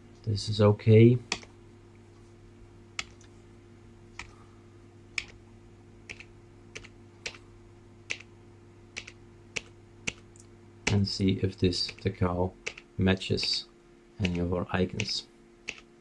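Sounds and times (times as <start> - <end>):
faint low hum: 0.0 - 16.0
keyboard keypresses: 1.3 - 1.5, 3.0 - 3.3, 5.2 - 5.4, 6.1 - 7.4, 8.1 - 8.3, 9.0 - 10.2, 11.8 - 13.6, 14.2 - 15.9.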